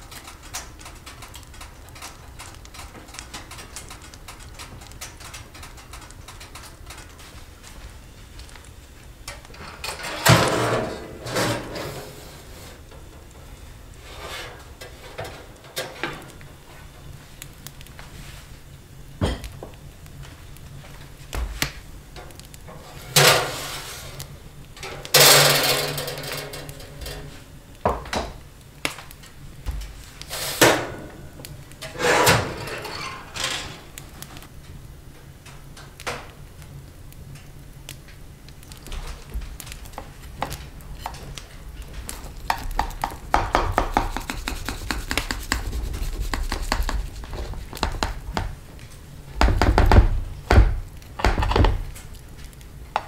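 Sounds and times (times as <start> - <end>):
utensils clattering on dishes: 9.6 - 12.1, 24.8 - 27.4, 31.8 - 33.9
utensil scraping cookware: 9.6 - 12.8, 14.0 - 16.3, 22.7 - 24.2, 31.8 - 34.0.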